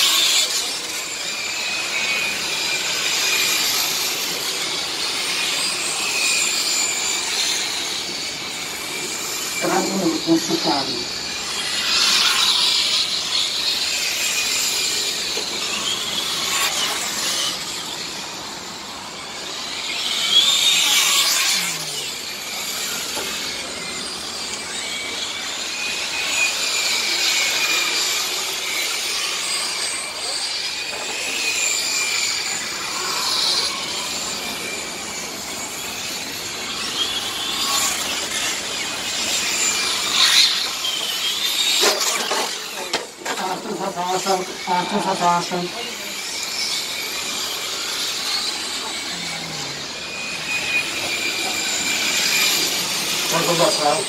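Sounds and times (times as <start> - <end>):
model truck motor whine: 0.0 - 54.0.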